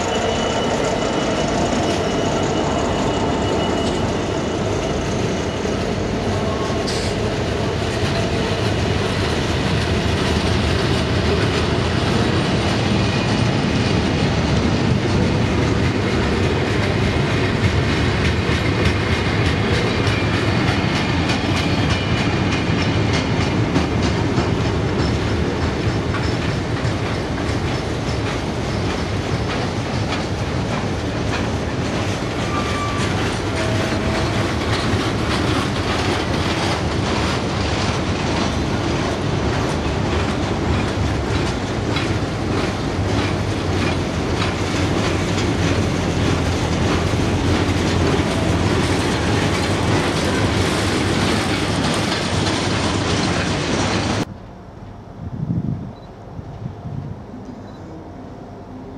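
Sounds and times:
freight wagons rumbling: 0.0 - 54.3
wheels clacking over rail joints: 5.5 - 54.3.

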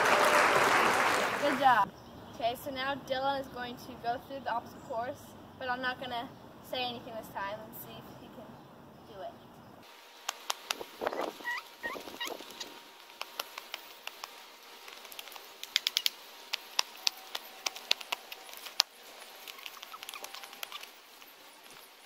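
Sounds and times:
child's footsteps on concrete: 10.3 - 22.0.

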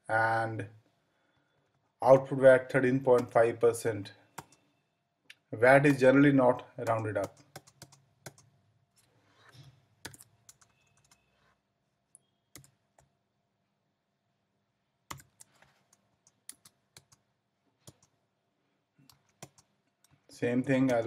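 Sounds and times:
typing on computer keyboard: 3.1 - 3.4, 4.3 - 4.7, 6.8 - 8.5, 10.0 - 11.3, 12.5 - 13.1, 15.1 - 17.2, 17.8 - 18.2, 19.0 - 21.0.

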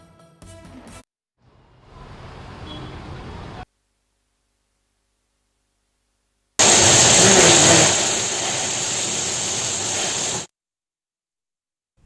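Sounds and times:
rain and wind on microphone: 6.6 - 10.5.

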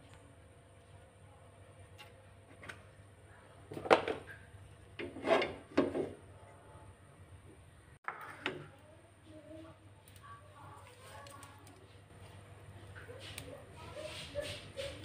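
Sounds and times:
wok scraping and knocking: 4.9 - 6.2.

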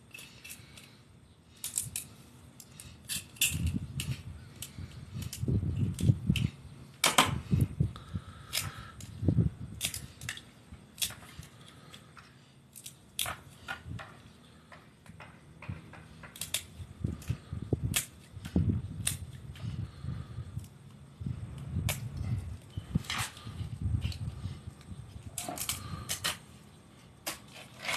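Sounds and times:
crab shells cracking: 16.2 - 16.7.

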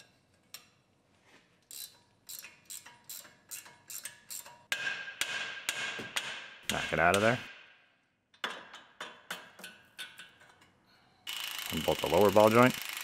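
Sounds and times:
ratchet wrench clicking: 1.6 - 4.7, 11.3 - 13.0.

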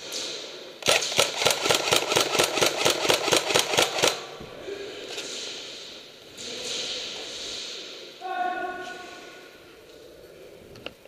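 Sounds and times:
airsoft gun shots: 0.8 - 4.3.

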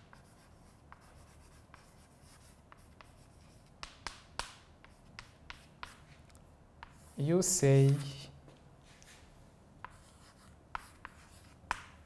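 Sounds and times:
chalk scraping on blackboard: 0.0 - 6.2, 9.8 - 12.0
chalk tapping on board: 0.0 - 6.2, 9.8 - 12.0.

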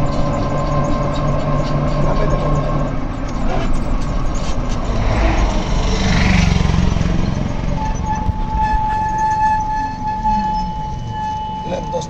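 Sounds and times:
bus engine and road rumble: 0.0 - 12.0
steady high tone: 6.6 - 12.0.

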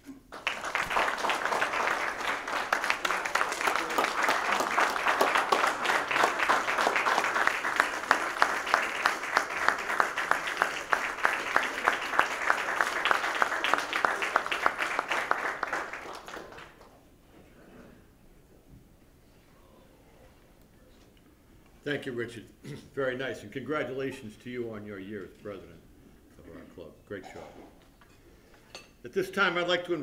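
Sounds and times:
nearby hands clapping steadily: 0.0 - 16.9
crowd applauding: 0.0 - 17.0.

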